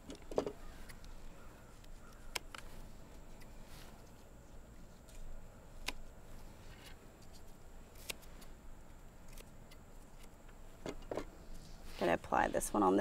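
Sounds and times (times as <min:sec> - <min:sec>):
scissors snipping stems: 0:00.1 - 0:01.1, 0:01.8 - 0:03.6, 0:05.1 - 0:06.1, 0:07.2 - 0:08.5, 0:09.2 - 0:10.4.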